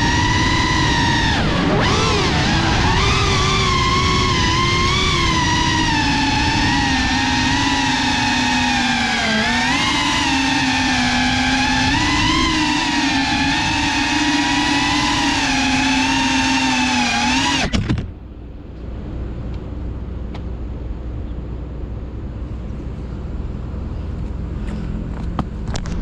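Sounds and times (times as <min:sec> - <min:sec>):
drone motors whining: 0:00.0 - 0:18.2
faint outdoor background: 0:00.0 - 0:26.0.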